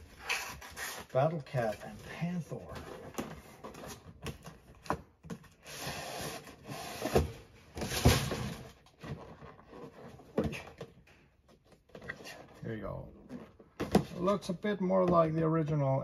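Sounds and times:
cardboard rustling and scraping: 0.0s - 10.9s.

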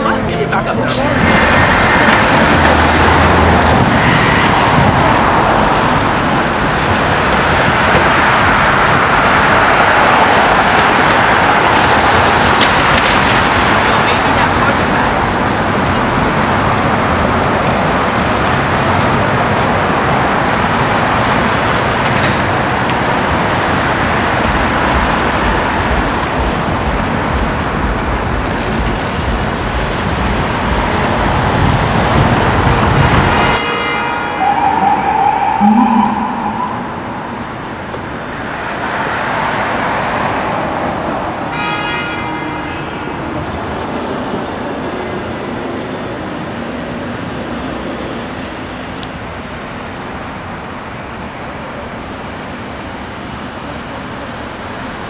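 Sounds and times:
passing cars: 0.0s - 55.0s
traffic hum: 0.0s - 55.0s
rising siren-like tone: 34.3s - 37.8s.

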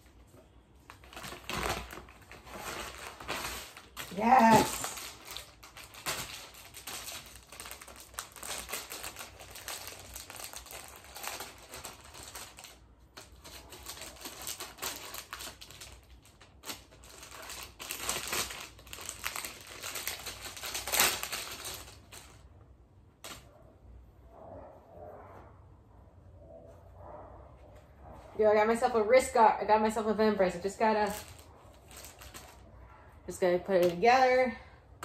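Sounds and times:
plastic packaging crinkling: 0.0s - 22.5s, 30.4s - 32.7s.

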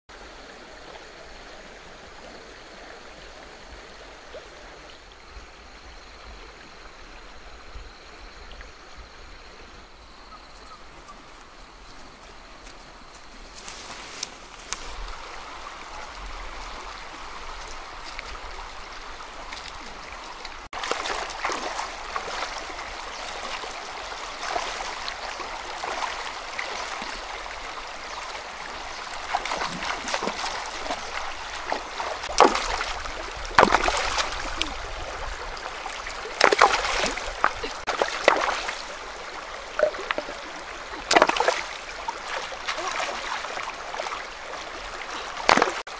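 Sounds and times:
river water over stones: 0.1s - 45.9s
hands splashing in water: 29.2s - 34.8s, 36.2s - 39.0s, 39.8s - 43.5s, 45.4s - 45.8s.

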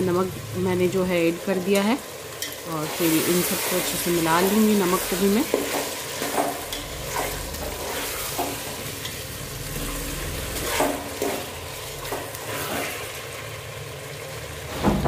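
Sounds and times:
vegetables sizzling in oil: 0.0s - 15.0s
metal spoon scraping a pot: 5.5s - 9.2s, 10.6s - 13.1s.

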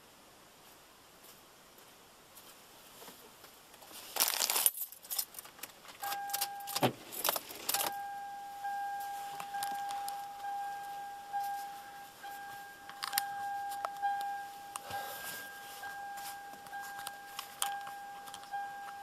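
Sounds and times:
car keys jangling: 4.6s - 19.0s
dashboard warning tone: 6.0s - 7.0s, 7.6s - 19.0s.

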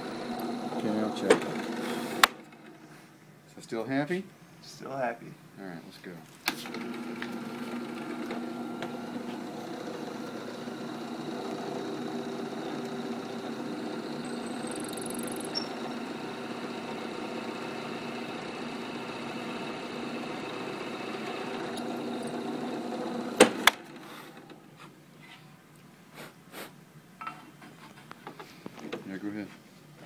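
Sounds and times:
drill bit drilling into stone: 0.0s - 2.2s, 6.7s - 24.2s
drill press motor hum: 0.0s - 2.8s, 6.5s - 24.7s.

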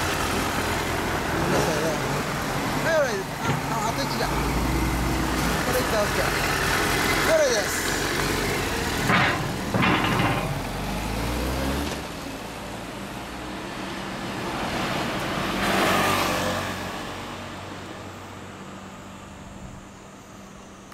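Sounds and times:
vehicle passing close by: 10.5s - 18.3s.

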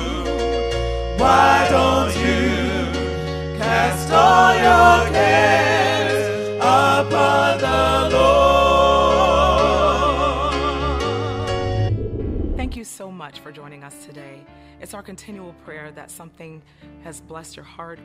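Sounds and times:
bass line: 0.0s - 5.0s, 9.2s - 12.8s
voices singing with vibrato: 1.2s - 11.8s.

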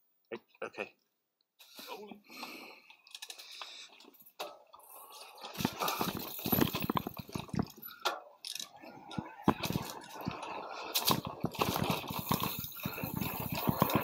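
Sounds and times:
bike rattling and knocking: 4.4s - 8.3s, 9.1s - 14.0s
tyre and wind rush: 8.8s - 14.0s.

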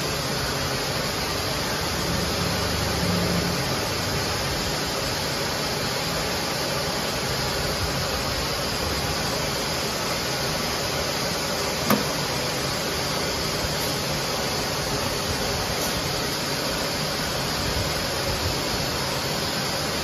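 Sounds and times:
extrusion machine hum and hiss: 0.0s - 20.0s
short knock: 11.8s - 12.2s.

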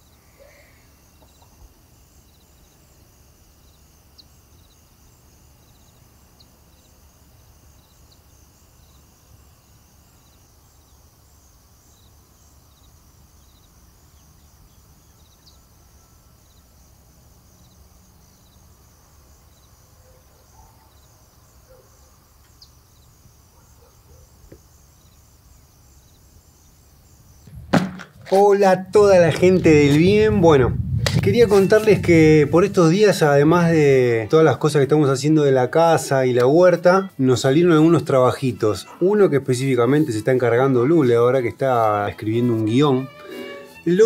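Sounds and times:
short insect chirps: 0.0s - 35.1s
insect chorus: 0.0s - 44.0s.

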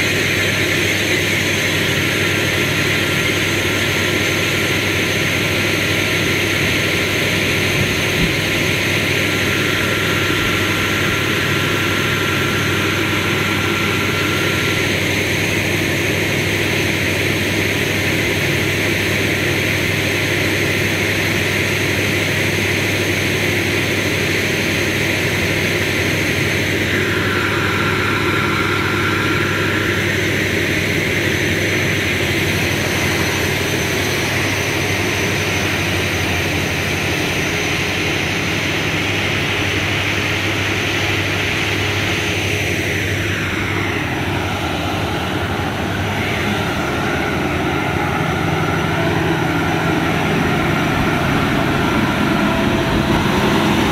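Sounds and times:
train wheels rumbling on rails: 0.0s - 16.1s, 26.9s - 53.9s
train mechanical drone: 0.0s - 53.9s.

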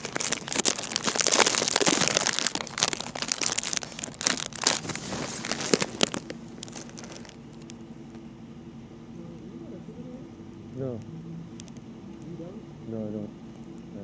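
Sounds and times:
crinkling handling noise: 0.0s - 8.2s.

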